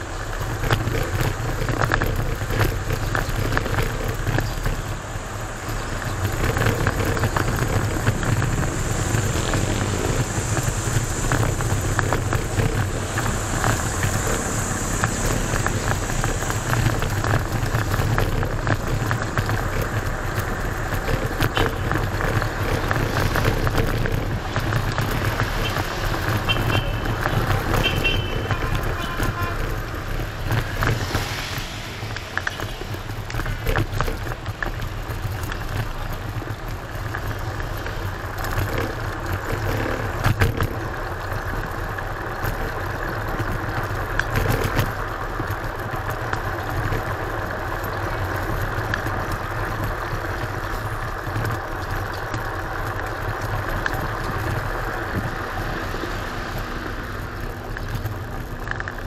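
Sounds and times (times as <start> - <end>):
scooter road rumble: 0.0 - 59.0
wind noise: 0.0 - 59.0.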